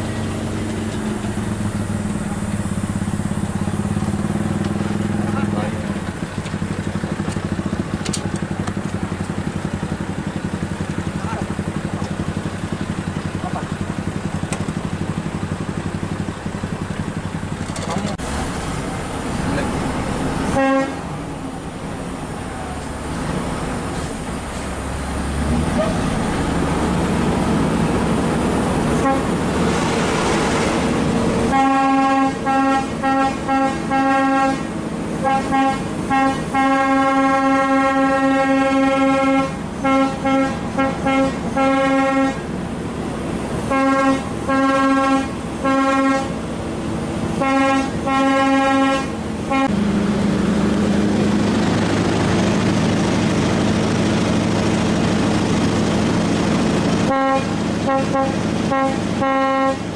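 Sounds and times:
diesel truck engine drone: 0:00.0 - 0:59.9
truck air horn blasts: 0:20.5 - 0:21.1, 0:29.0 - 0:29.4, 0:31.5 - 0:42.4, 0:43.7 - 0:46.4, 0:47.4 - 0:49.8, 0:57.1 - 0:59.9.

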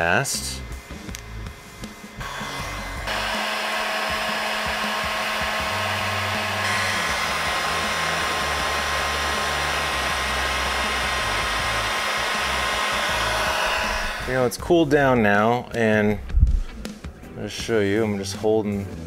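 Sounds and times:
heat gun blowing air: 0:00.8 - 0:14.4.

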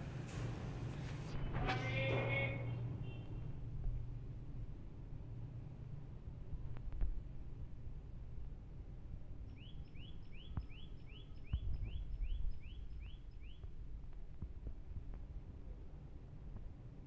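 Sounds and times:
low outdoor rumble: 0:00.0 - 0:17.0
bird chirping: 0:09.4 - 0:13.9.

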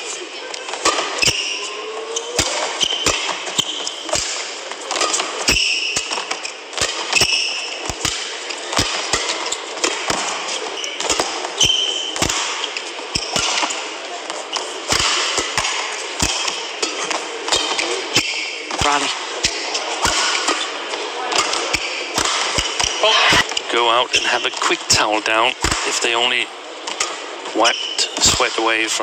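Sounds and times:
crowd murmur: 0:00.0 - 0:05.5, 0:12.4 - 0:29.0
shoes squeaking on court: 0:00.0 - 0:24.5
rackets hitting shuttlecock: 0:00.6 - 0:01.7, 0:02.3 - 0:23.6, 0:25.6 - 0:26.2.

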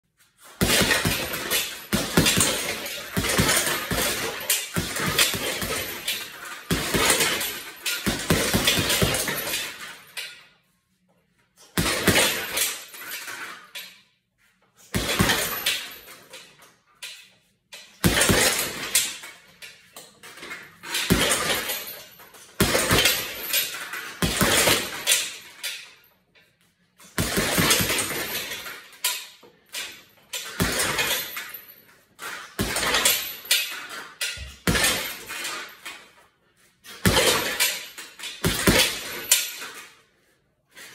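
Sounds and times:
boxing gloves punching heavy bag: 0:00.4 - 0:09.9, 0:11.8 - 0:12.8, 0:14.9 - 0:16.0, 0:18.0 - 0:19.2, 0:20.9 - 0:22.0, 0:22.6 - 0:25.4, 0:27.1 - 0:28.7, 0:30.4 - 0:31.5, 0:32.3 - 0:33.4, 0:34.4 - 0:35.7, 0:36.9 - 0:39.5.

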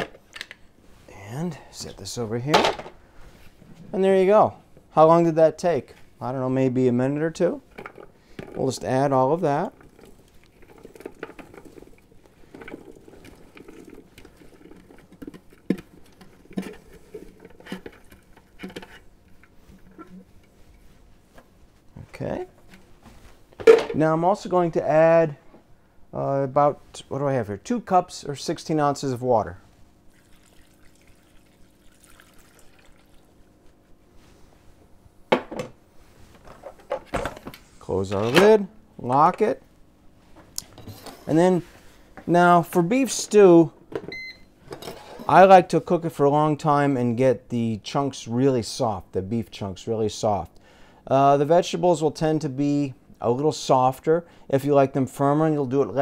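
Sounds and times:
water trickling and dripping: 0:30.1 - 0:33.3.

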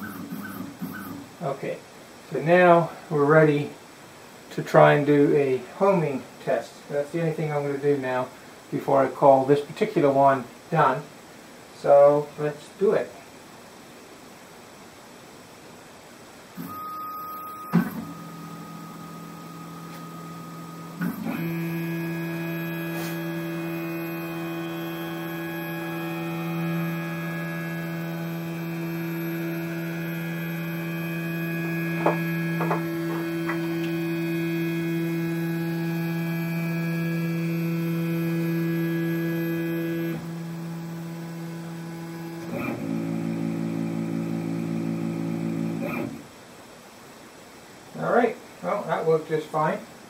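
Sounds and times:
stepper motors whining: 0:00.0 - 0:01.3, 0:17.7 - 0:46.3.

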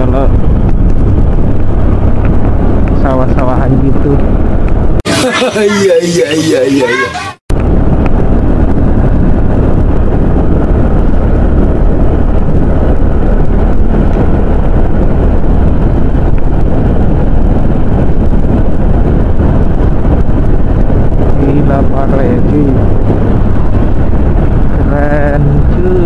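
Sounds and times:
wind rushing over microphone: 0:00.0 - 0:26.0
motorcycle engine running: 0:07.6 - 0:26.0.

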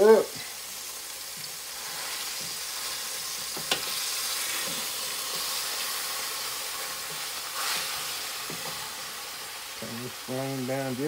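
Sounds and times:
ground beef sizzling: 0:00.0 - 0:11.0.

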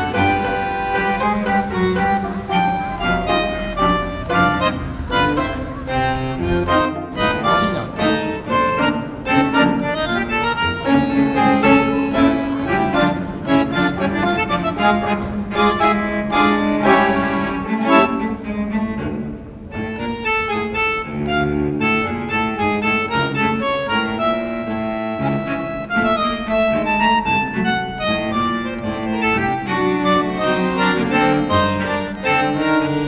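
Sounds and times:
bowed strings and bass: 0:00.0 - 0:33.0
instrumental music: 0:00.0 - 0:33.0
reedy melody: 0:00.0 - 0:33.0.

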